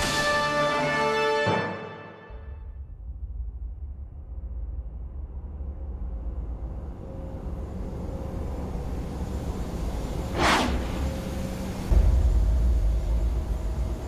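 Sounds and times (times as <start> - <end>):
spacecraft engine rumble: 2.7 - 14.0.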